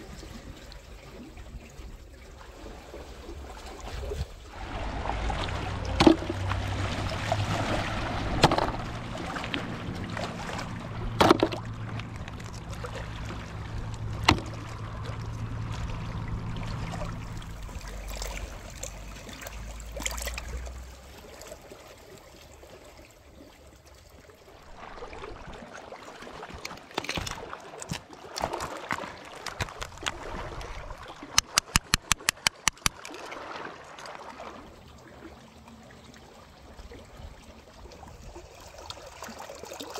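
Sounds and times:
water lapping over rocks: 0.0 - 39.9
low steady hum: 4.3 - 21.2
hammer chipping shells: 31.4 - 33.0
shell clicks: 31.4 - 33.0.

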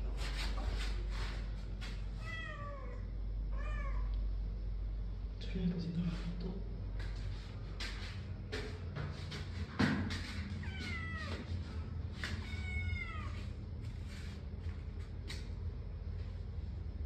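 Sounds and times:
cat meowing: 2.2 - 4.1, 10.6 - 11.4, 12.4 - 13.4.

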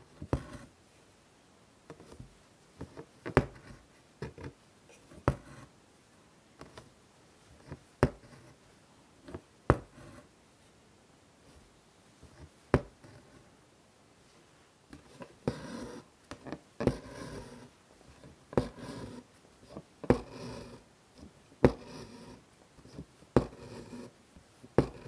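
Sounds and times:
needle tapping through fabric: 1.9 - 4.6, 7.6 - 8.4, 9.3 - 10.2, 12.3 - 13.3, 14.9 - 17.6, 18.5 - 20.8, 21.6 - 22.3, 22.9 - 24.0, 24.8 - 25.0
thread rasping through cloth: 15.0 - 24.1, 24.8 - 25.0.

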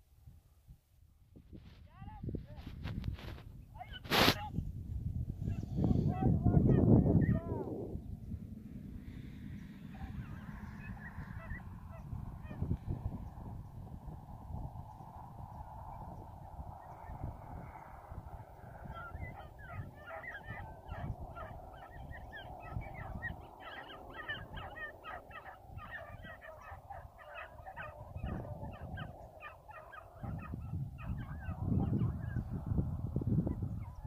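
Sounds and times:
wind on microphone: 0.0 - 34.0
dogs baying: 10.0 - 12.6, 18.9 - 32.5.

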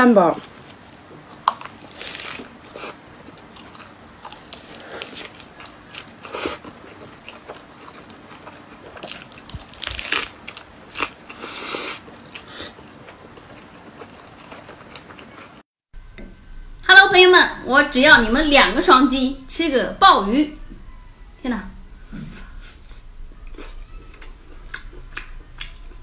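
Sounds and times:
crunching leaves while chewing: 0.3 - 15.6.

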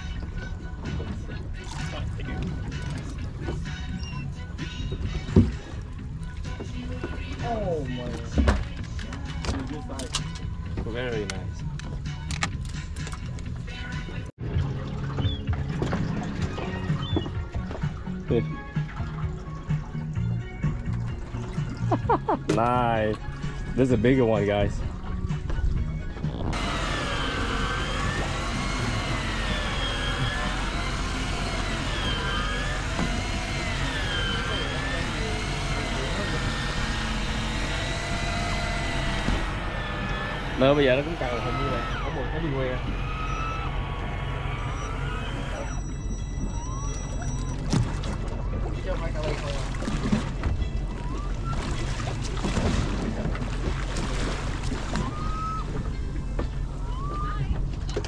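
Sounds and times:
water lapping: 0.0 - 12.2, 12.8 - 58.0
boat engine hum: 0.0 - 58.0
motor rumbling with whine: 0.0 - 58.0
wind: 0.0 - 58.0
rising whistle-like tones: 39.3 - 47.7, 54.9 - 55.8.

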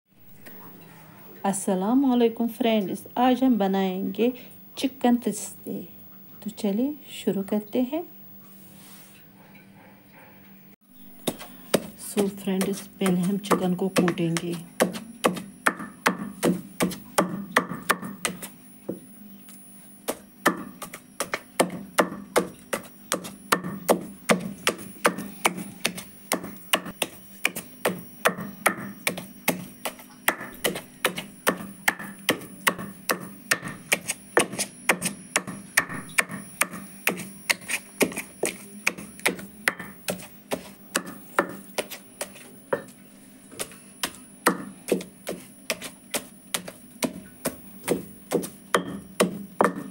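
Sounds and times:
pestle pounding in stone mortar: 11.2 - 19.0, 20.1 - 42.9, 43.6 - 49.9.

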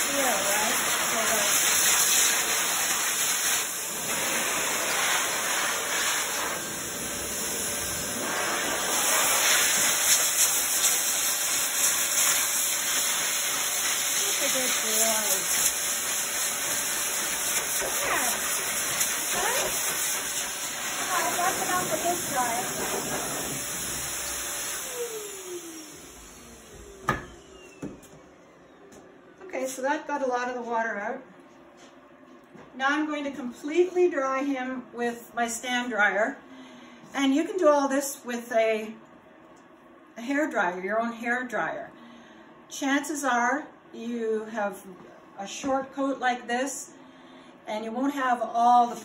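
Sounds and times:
pet dryer blowing air: 0.0 - 29.0
dryer motor winding down: 16.8 - 29.4.

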